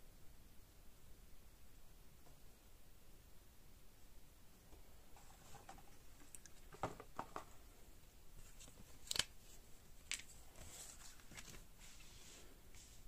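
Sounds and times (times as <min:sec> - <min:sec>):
cardboard cards handled: 0:08.4 - 0:12.2.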